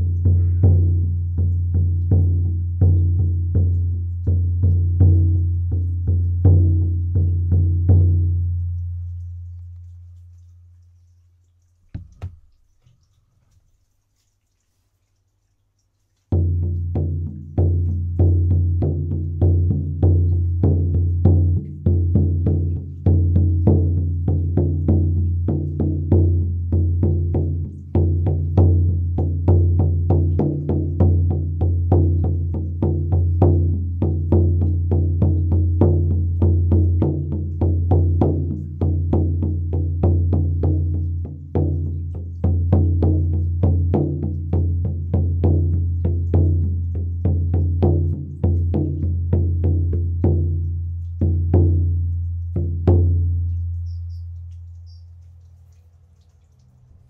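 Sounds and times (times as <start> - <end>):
frame drum beaten steadily: 16.4 - 53.5.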